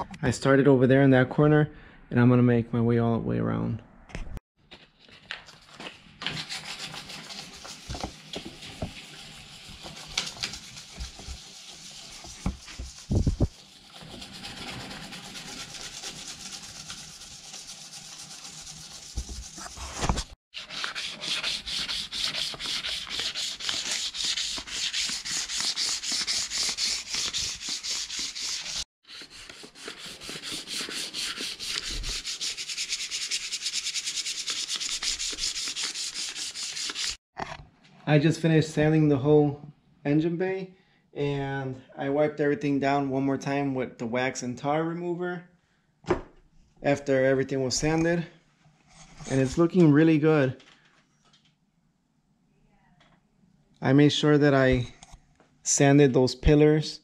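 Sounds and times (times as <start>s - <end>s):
sandpaper rubbing on metal: 6.3s - 37.2s.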